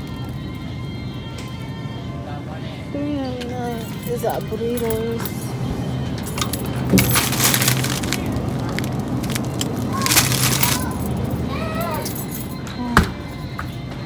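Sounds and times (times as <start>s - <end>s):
crackling rustle: 7.0s - 11.1s.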